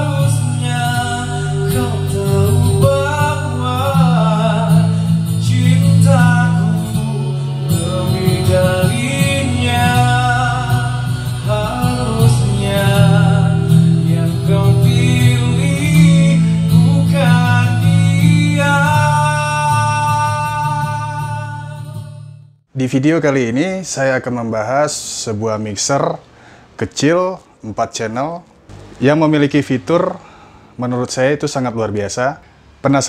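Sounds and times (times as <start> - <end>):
man singing into a microphone: 0.0 - 22.2
guitar accompaniment: 0.0 - 22.6.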